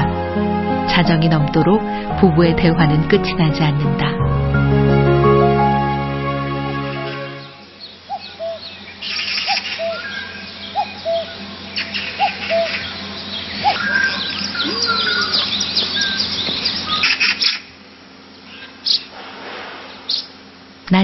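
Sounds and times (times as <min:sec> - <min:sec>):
high bird chirps and twitters: 0:07.8 - 0:17.7.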